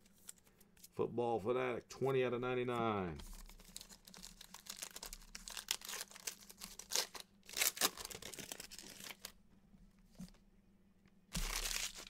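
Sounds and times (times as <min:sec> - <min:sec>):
foil pack tearing and crinkling: 0:03.4 - 0:09.4, 0:11.3 - 0:12.0.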